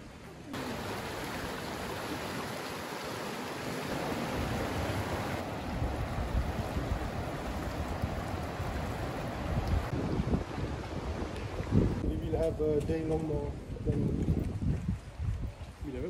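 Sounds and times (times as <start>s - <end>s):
river rushing over stones: 0.5s - 12.0s.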